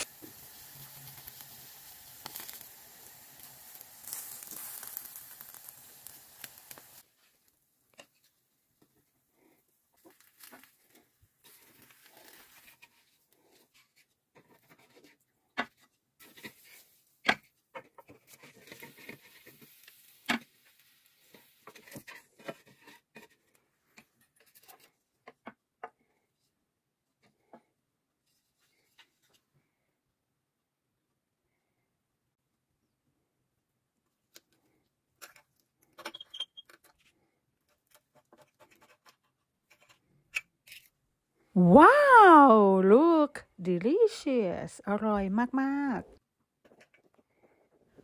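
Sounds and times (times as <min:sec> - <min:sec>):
eggs sizzling in a pan: 0:00.0 - 0:15.1, 0:16.2 - 0:22.9.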